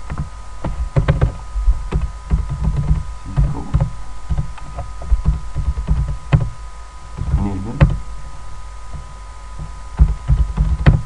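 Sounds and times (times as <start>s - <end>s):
electrical hum: 0.0s - 11.0s
computer keyboard typing: 1.0s - 6.5s, 10.0s - 11.0s.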